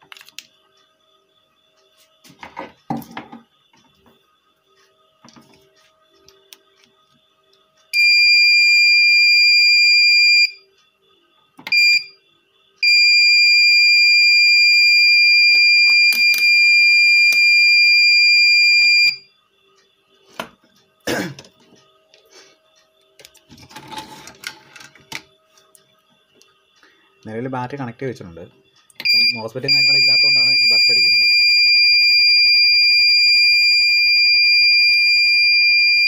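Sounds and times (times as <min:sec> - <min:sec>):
alarm buzzer beeping: 0:07.9 - 0:10.8, 0:11.6 - 0:12.2, 0:12.8 - 0:19.4, 0:29.0 - 0:36.0.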